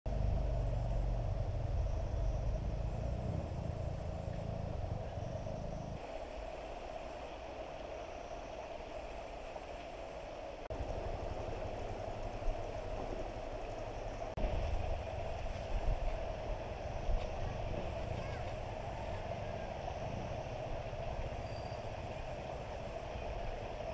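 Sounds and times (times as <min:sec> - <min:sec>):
low rumble: 0:00.1 - 0:07.2
constant outdoor hiss: 0:00.1 - 0:23.9.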